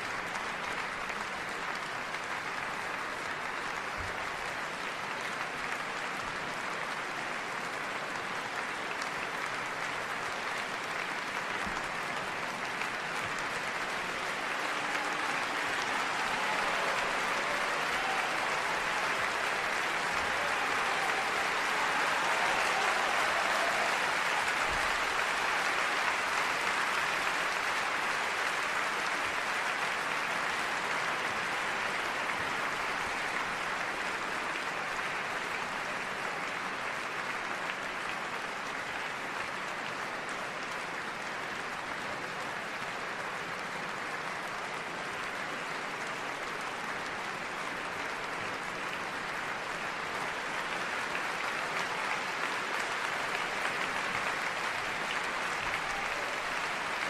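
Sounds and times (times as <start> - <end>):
crowd applause: 0.0 - 57.0.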